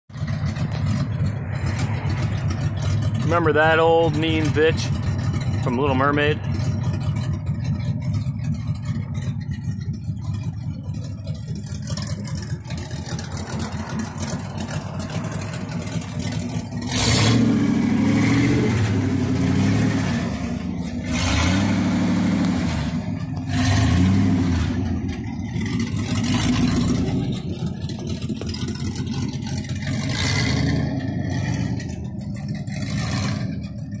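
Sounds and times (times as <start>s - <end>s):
car engine idling and revving: 0.1s - 34.0s.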